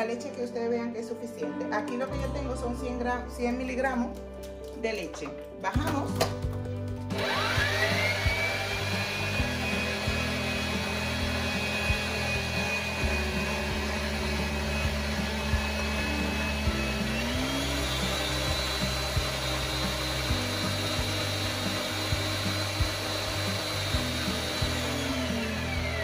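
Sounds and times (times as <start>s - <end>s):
stand mixer motor whine: 7.1s - 26.0s.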